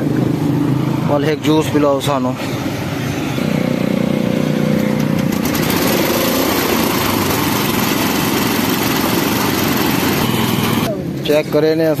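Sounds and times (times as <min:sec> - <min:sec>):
cane juice crusher running: 0:04.8 - 0:10.9.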